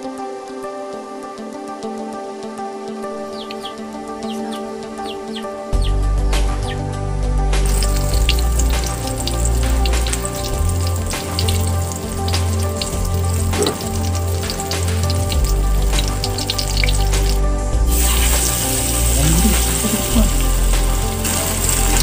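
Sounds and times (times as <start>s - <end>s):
background music with bass line: 0.0s - 22.0s
hot oil sizzling and spattering: 7.6s - 22.0s.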